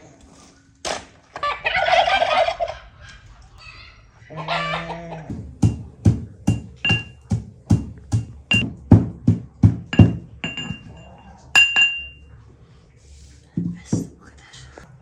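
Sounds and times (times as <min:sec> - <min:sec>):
metal pestle pounding in mortar: 0:05.3 - 0:12.2.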